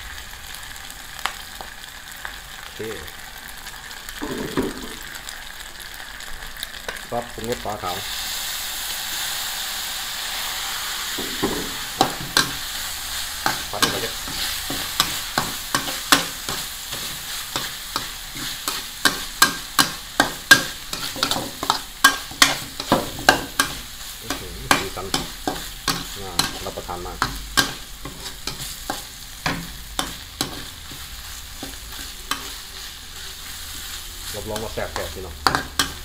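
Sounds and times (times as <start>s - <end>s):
food sizzling: 0.0s - 36.0s
metal spatula scraping a wok: 11.4s - 36.0s.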